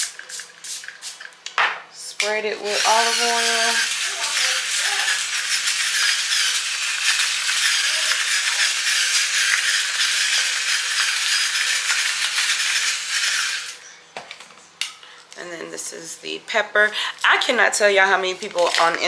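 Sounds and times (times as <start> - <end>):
electric grinder running: 2.6 - 13.8.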